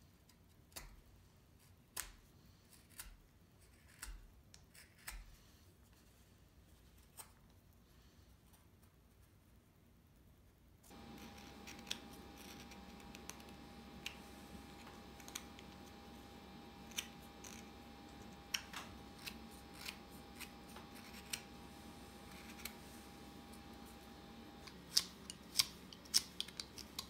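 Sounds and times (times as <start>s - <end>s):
steady faint tone: 10.9s - 27.0s.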